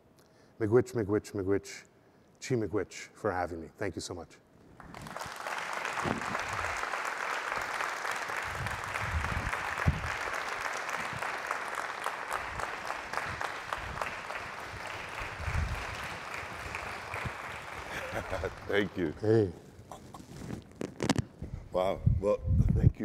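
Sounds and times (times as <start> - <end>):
audience applauding: 4.8 - 19.2.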